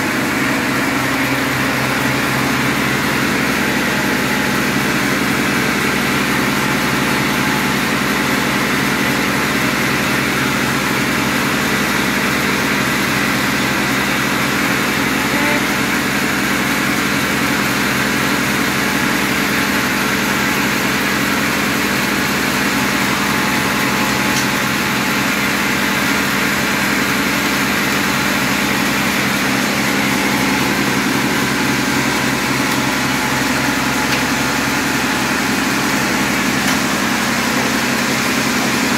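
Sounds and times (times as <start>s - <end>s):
sawmill machinery running: 0.0s - 38.9s.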